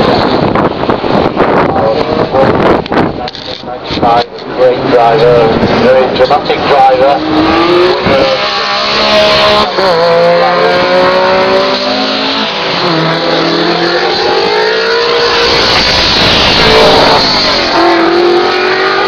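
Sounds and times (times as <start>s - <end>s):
rally car engines accelerating: 4.7s - 19.0s.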